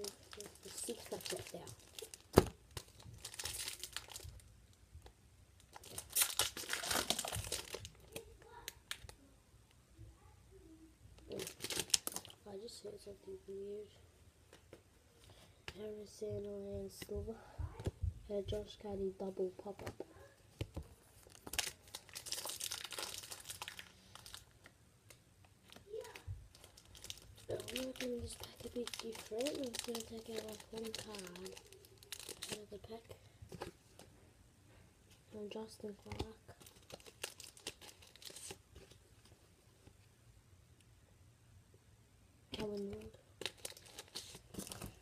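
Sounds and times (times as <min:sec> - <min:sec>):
foil wrapper crinkling and tearing: 0:00.0 - 0:04.5, 0:05.6 - 0:09.1, 0:11.3 - 0:12.4, 0:21.2 - 0:24.6, 0:25.7 - 0:33.0, 0:36.6 - 0:39.0, 0:42.6 - 0:45.0.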